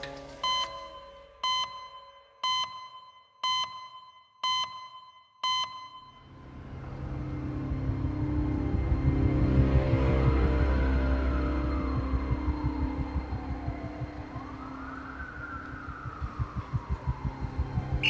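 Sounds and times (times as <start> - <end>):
short electronic beeps: 0.4 - 6.3
low rumbling music: 6.3 - 18.0.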